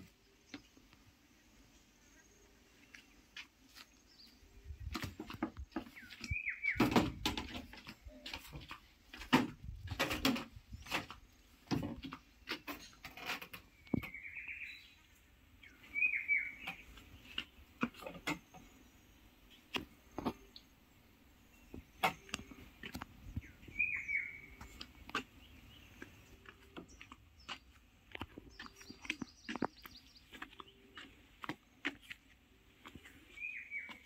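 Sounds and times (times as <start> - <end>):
bird chirping: 0.0 - 8.8, 12.0 - 34.0
sharp knocks and clicks: 4.9 - 14.1.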